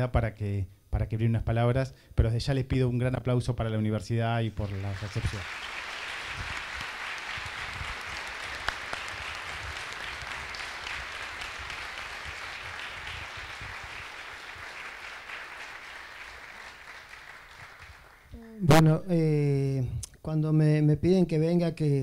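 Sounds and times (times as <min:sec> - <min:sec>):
audience applauding: 0:04.6 - 0:18.4.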